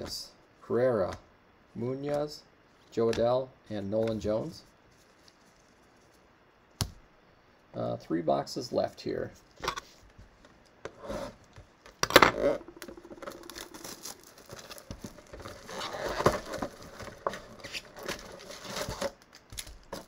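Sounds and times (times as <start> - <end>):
packs rustling and crinkling: 12.7 - 20.0
cardboard box ripping: 13.3 - 20.0.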